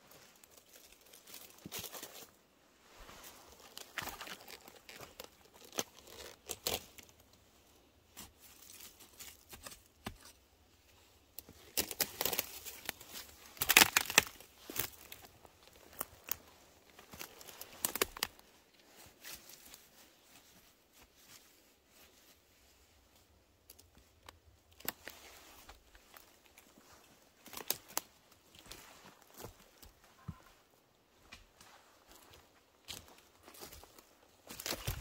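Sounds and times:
rustling of dry leaf litter: 0.0 - 9.9, 11.4 - 30.0
twigs snapping: 3.5 - 7.1, 11.4 - 18.4, 23.7 - 26.6, 27.4 - 28.8.

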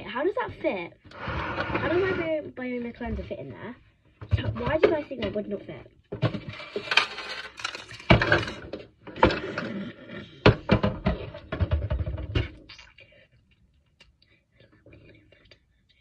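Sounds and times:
plastic bottle knocking and scraping: 4.2 - 12.7.

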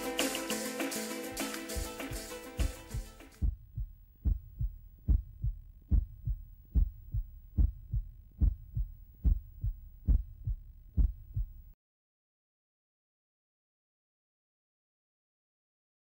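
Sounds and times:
heartbeat thuds: 1.8 - 11.8.

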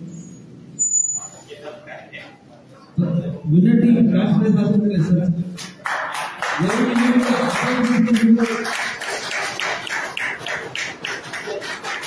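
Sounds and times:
audience clapping in rhythm: 5.6 - 12.0.

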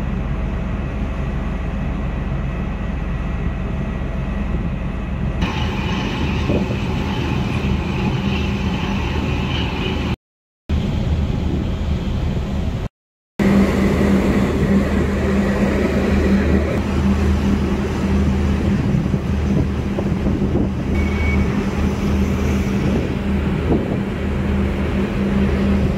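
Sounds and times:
churning water: 0.0 - 10.2, 13.4 - 25.9
wind rushing: 5.4 - 9.4
diesel engine humming: 10.8 - 25.9.

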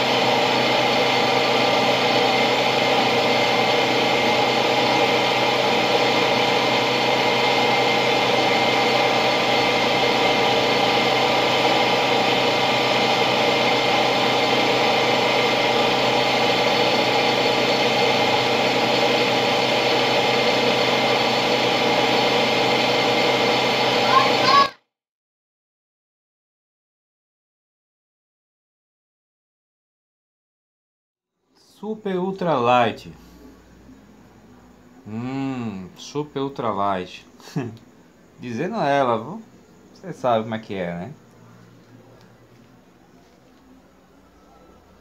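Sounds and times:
motor humming steadily: 0.0 - 24.7.

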